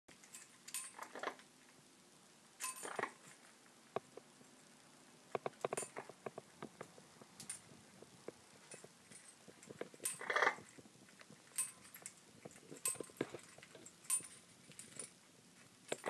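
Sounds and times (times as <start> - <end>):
metal bell toy jingling: 11.6 - 12.2, 12.8 - 15.1.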